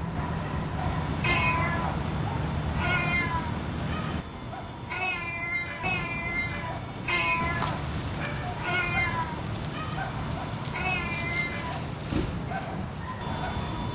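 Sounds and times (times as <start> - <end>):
cat meowing: 0.0 - 2.0, 2.8 - 4.2, 4.9 - 11.9.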